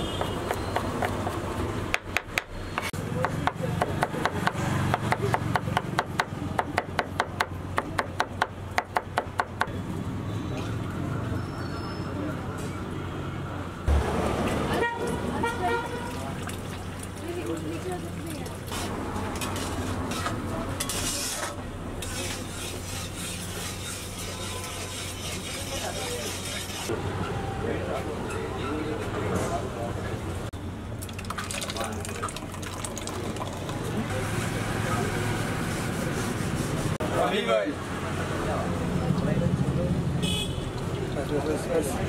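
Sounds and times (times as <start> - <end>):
metal spatula scraping pan: 18.8 - 26.9.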